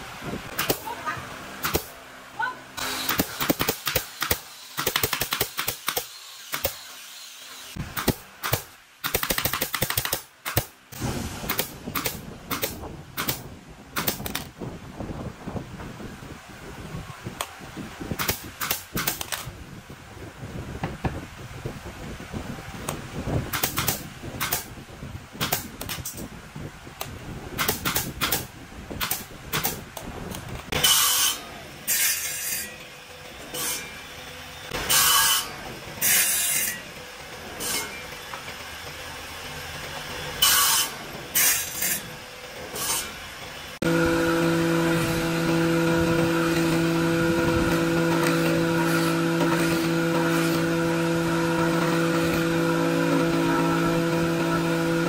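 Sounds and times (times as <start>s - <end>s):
handheld drill driving screws: 44.8s - 55.0s.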